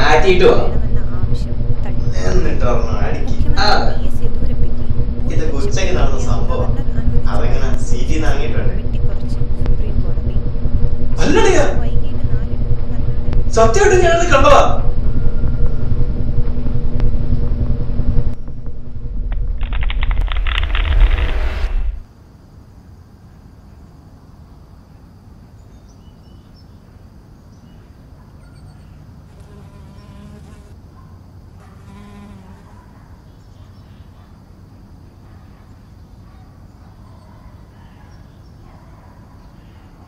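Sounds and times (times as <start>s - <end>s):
buzzing insect: 0.0s - 17.7s, 28.7s - 30.8s, 31.5s - 33.0s
thunder rumble: 0.0s - 22.1s
faint low hum: 0.0s - 40.0s.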